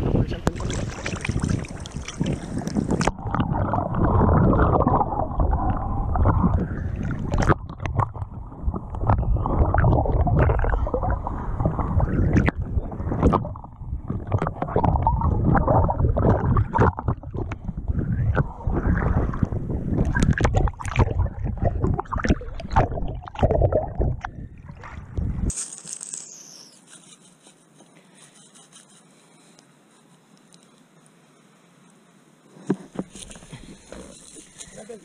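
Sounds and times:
underwater sloshing and gurgling: 0.0s - 25.5s, 32.5s - 34.9s
underwater clicks and knocks: 5.7s - 10.7s, 12.3s - 18.5s, 19.4s - 24.4s.

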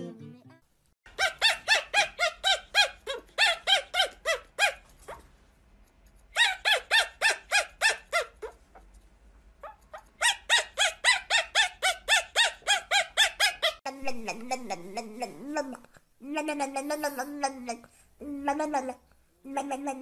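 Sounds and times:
puppy yapping high-pitched: 1.1s - 5.2s, 6.4s - 8.8s, 9.6s - 13.8s.

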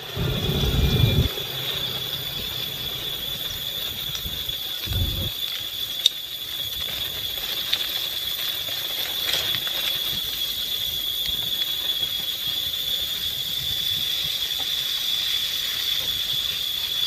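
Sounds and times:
high-pitched insect chorus: 0.0s - 17.0s.

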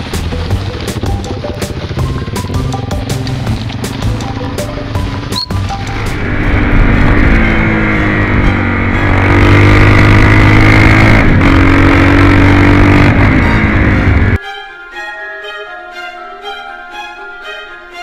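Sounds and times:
motorcycle engine revving: 0.0s - 14.4s
orchestral music with violin: 14.3s - 18.0s.

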